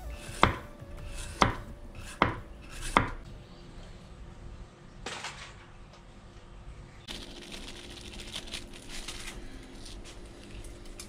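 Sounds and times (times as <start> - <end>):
knife striking cutting board: 0.2 - 3.2.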